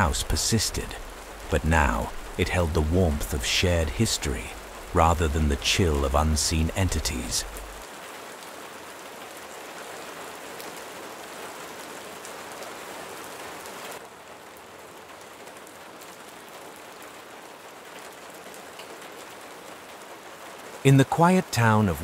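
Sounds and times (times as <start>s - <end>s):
steady rain hiss: 0.0s - 22.0s.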